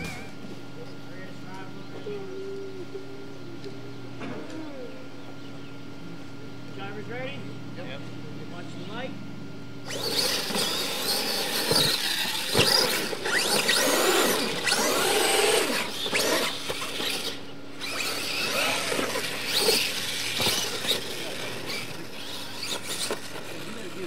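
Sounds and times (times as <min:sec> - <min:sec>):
electric motors whining: 0:00.0 - 0:24.0.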